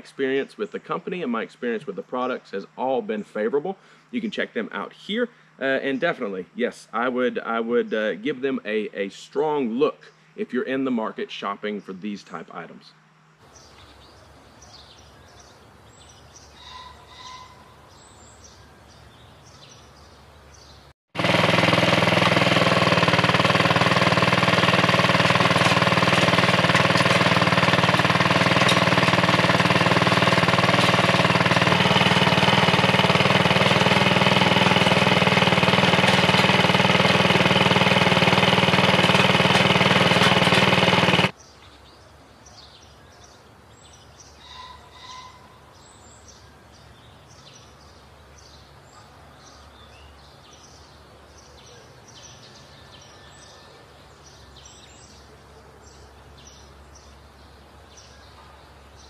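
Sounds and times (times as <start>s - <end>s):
birds chirping: 0.0s - 20.9s, 41.2s - 59.0s
garden tiller engine running: 21.2s - 41.4s.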